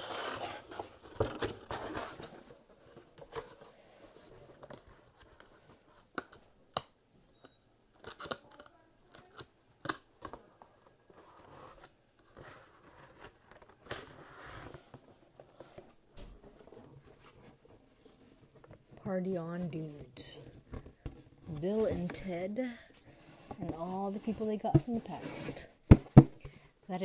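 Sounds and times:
cardboard rustling: 0.0 - 6.1, 23.1 - 26.5.

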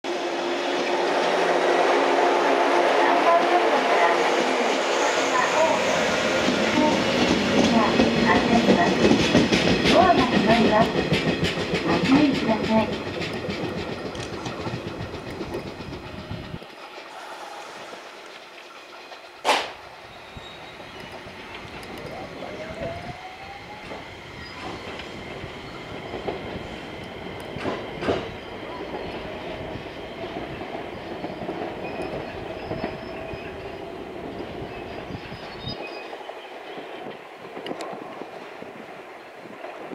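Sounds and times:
electric train motors whining: 0.7 - 30.3
wheels clacking over rail joints: 5.7 - 22.6.

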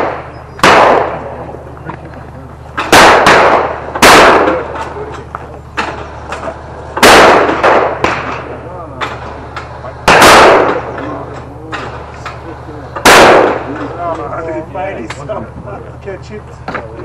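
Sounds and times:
shotgun shots with echo: 0.0 - 1.5, 2.8 - 5.0, 5.7 - 12.4, 13.0 - 13.9.

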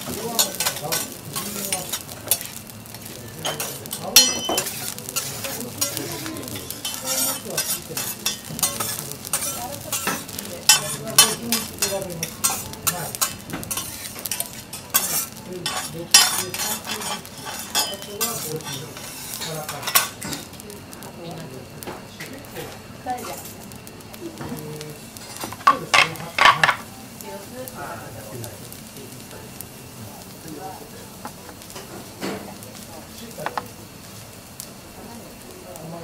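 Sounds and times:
rice sizzling: 0.0 - 36.0
metal spatulas scraping on griddle: 0.4 - 2.6, 3.4 - 20.5, 23.2 - 23.6.

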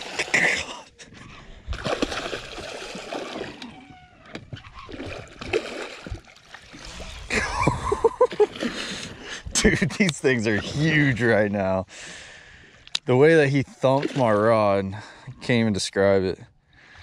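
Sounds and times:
fish splashing in water: 1.7 - 4.0, 4.6 - 7.3.

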